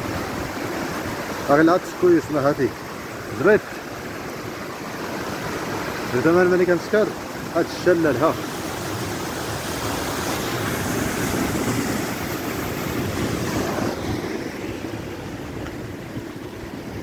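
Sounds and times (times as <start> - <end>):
surf breaking: 7.6 - 15.8.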